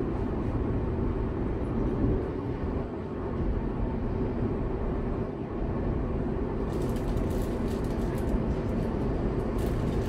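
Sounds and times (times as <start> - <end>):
train wheels rumbling on rails: 6.0 - 10.0.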